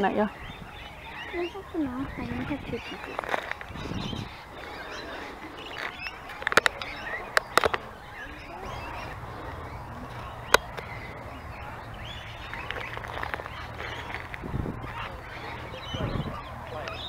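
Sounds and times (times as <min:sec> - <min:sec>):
birds chirping faintly: 0:00.0 - 0:17.0
sharp clicks: 0:05.6 - 0:07.9.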